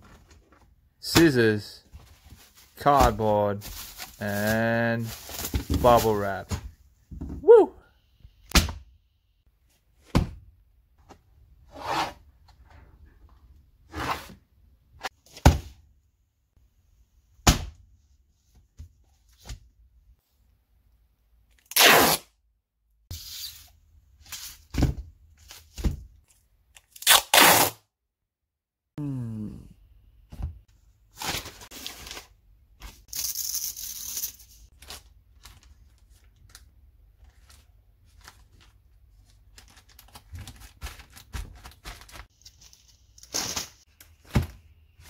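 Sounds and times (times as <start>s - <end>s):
packing tape pulled off roll: 21.6s - 22.2s, 27.0s - 27.8s.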